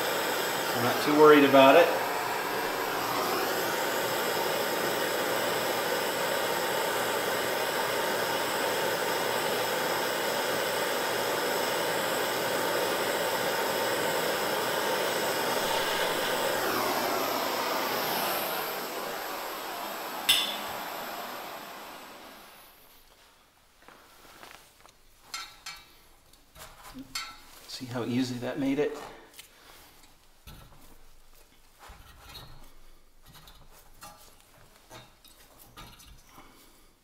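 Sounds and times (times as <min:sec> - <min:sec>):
propane torch hissing: 0:00.0 - 0:23.1.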